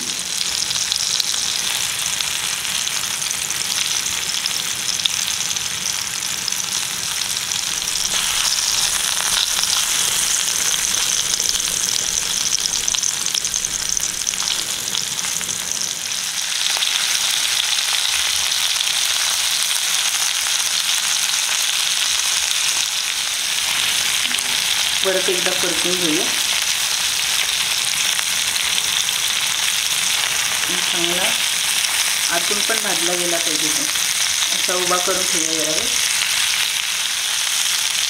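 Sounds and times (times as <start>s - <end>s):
fish sizzling in oil: 0.0s - 38.0s.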